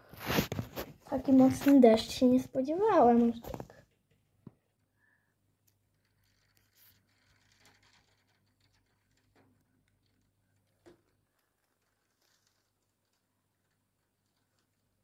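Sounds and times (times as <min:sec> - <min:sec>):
faint rain on a window: 0:03.2 - 0:15.0.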